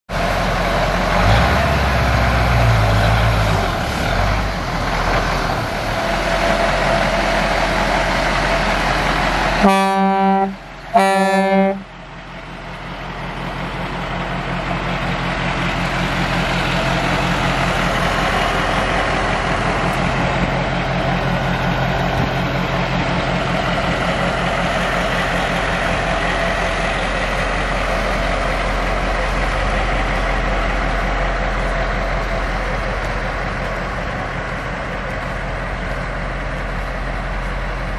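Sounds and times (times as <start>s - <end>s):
diesel truck engine running: 0.1s - 37.9s
air horn blasts: 9.6s - 11.9s.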